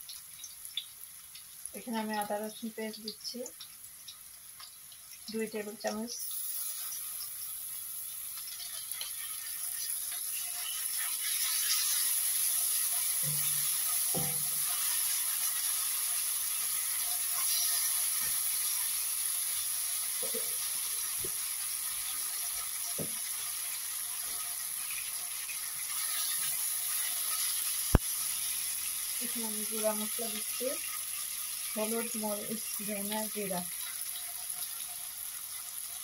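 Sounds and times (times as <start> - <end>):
onions sizzling in oil: 0.0 - 36.0
spatula scraping pan: 8.6 - 15.2, 16.7 - 18.8.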